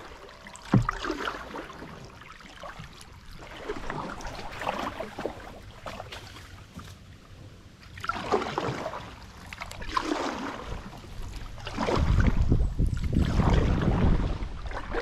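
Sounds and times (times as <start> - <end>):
paddle strokes swishing through water: 0.0 - 7.2, 7.8 - 15.0.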